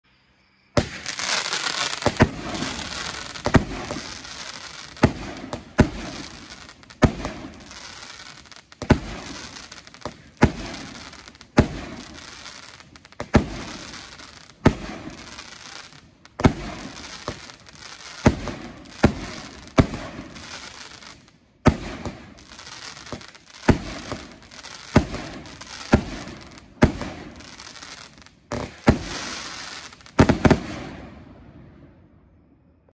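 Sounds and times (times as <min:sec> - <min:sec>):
firework fuse hiss: 0:00.4 - 0:30.6
firework shots exploding: 0:00.8 - 0:32.0.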